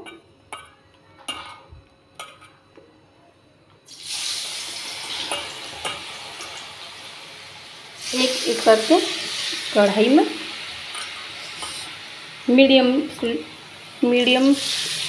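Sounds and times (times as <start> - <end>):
deep-frying sizzle: 3.9 - 15.0.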